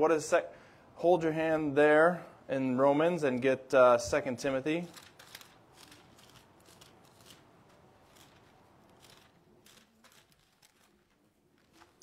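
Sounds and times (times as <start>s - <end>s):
thin pages rustling: 4.9s - 12.0s.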